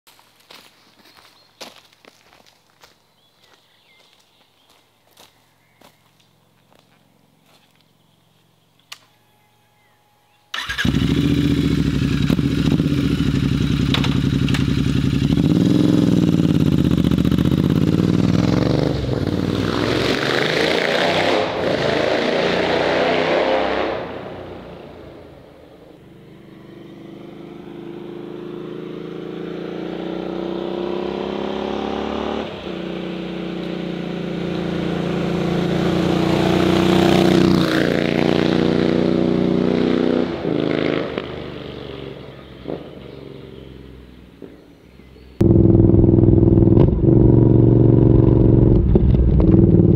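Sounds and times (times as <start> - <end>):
motorcycle engine revving: 10.5 - 44.6, 45.2 - 49.9.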